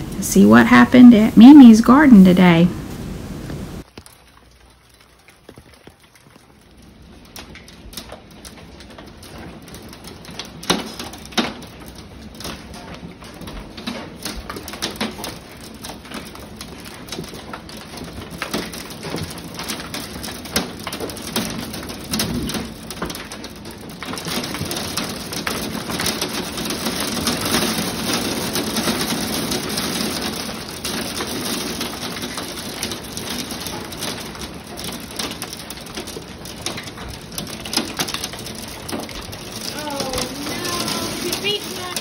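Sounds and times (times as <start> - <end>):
heavy rain hissing: 0.0 - 3.9, 23.8 - 42.0
hail clicking impacts: 0.0 - 42.0.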